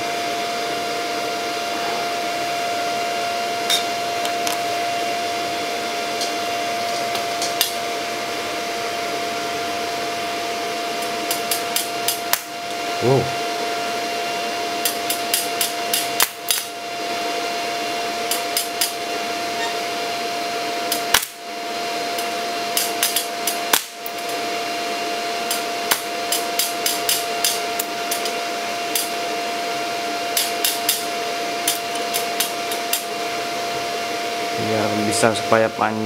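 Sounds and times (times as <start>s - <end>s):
welding arc hissing and crackling: 11.0s - 12.6s, 14.8s - 16.8s, 18.2s - 19.7s, 20.8s - 21.4s, 22.1s - 24.4s, 25.2s - 29.2s, 30.2s - 33.1s.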